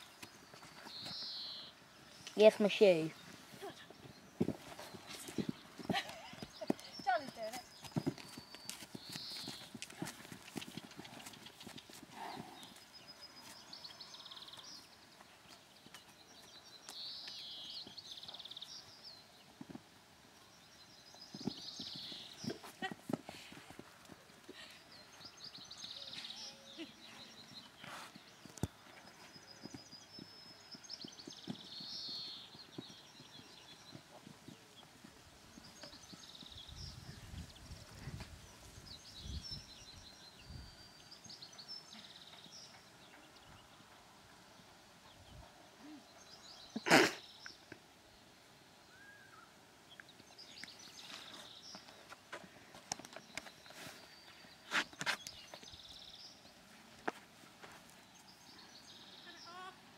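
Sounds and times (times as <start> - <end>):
birdsong: 0.0 - 59.9
hooves thudding on grass: 2.4 - 20.0, 20.7 - 26.5, 27.3 - 39.6.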